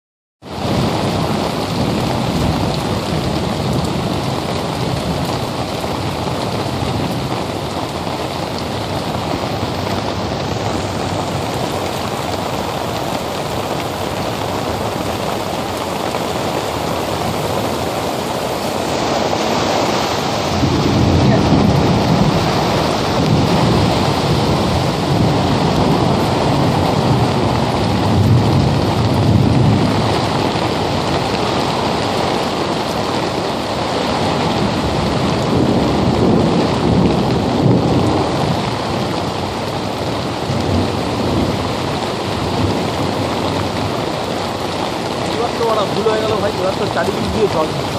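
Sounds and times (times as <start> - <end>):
heavy rain pouring: 0.4 - 47.9
deep rumbling thunder: 20.4 - 32.6, 34.0 - 43.9.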